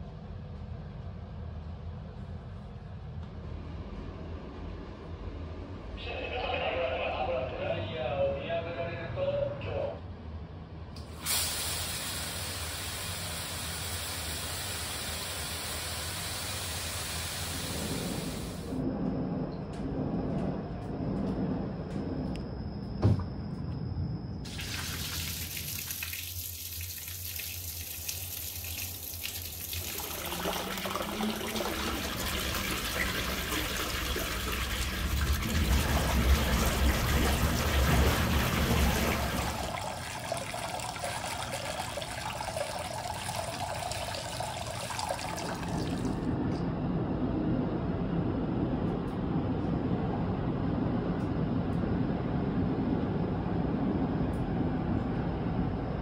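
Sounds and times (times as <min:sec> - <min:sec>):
water pouring into bathtub: 0:24.5 - 0:46.3.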